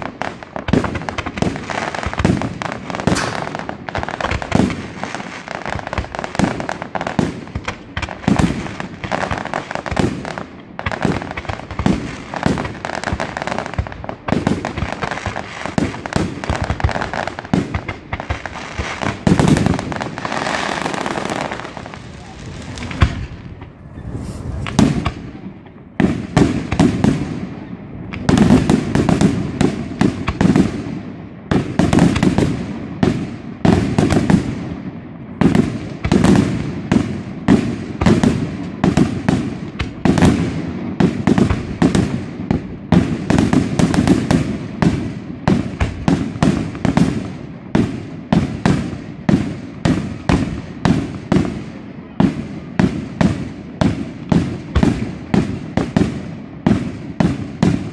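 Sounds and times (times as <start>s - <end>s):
fireworks bangs: 0.0s - 57.9s.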